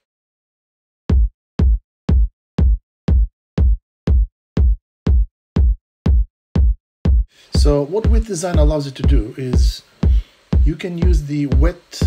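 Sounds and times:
electronic kick drum: 0:01.1 - 0:12.0.

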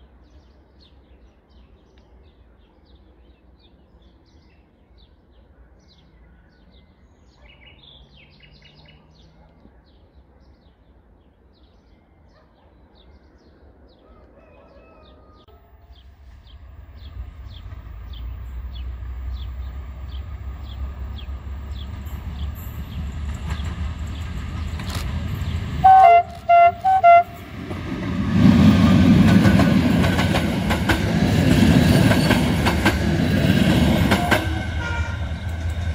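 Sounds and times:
train passing close by: 0:15.5 - 0:35.9
wheels clacking over rails: 0:17.1 - 0:35.9
train horn blasts: 0:25.8 - 0:27.6, 0:34.1 - 0:35.6.

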